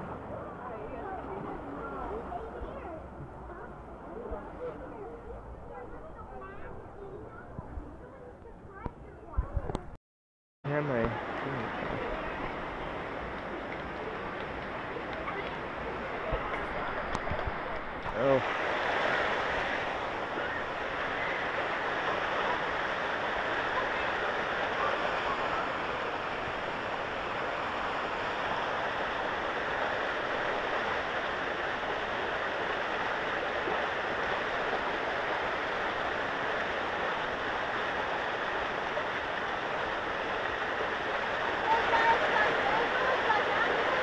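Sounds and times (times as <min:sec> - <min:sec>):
water rushing down slide: 0:10.8 - 0:44.0.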